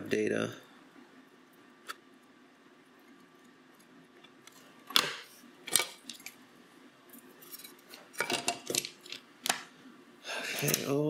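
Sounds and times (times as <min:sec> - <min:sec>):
small parts clicking and clattering: 0:07.1 - 0:09.6.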